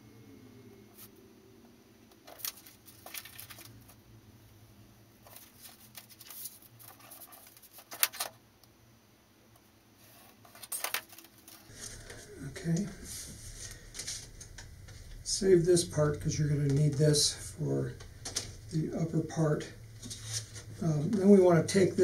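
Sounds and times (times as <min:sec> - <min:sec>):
paper rustling: 0:02.1 - 0:04.0, 0:05.2 - 0:08.4, 0:10.0 - 0:15.2, 0:20.0 - 0:21.9.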